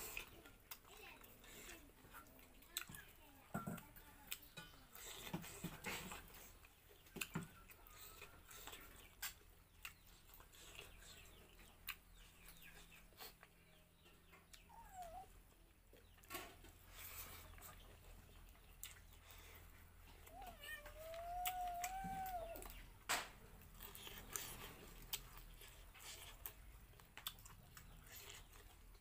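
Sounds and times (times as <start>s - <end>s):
soft eating clicks: 0.1s - 4.8s, 23.6s - 29.0s.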